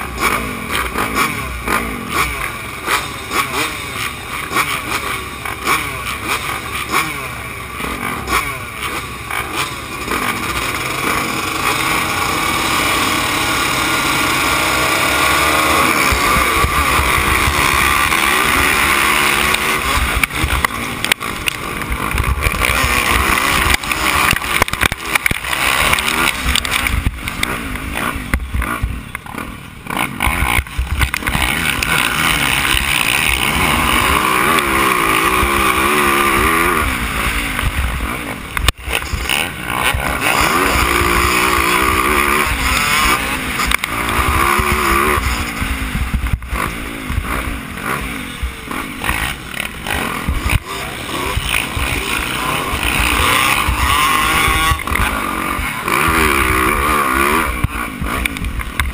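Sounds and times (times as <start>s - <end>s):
dirt bike engine at high revs: 0.0s - 58.9s
motocross bikes revving: 0.0s - 58.9s.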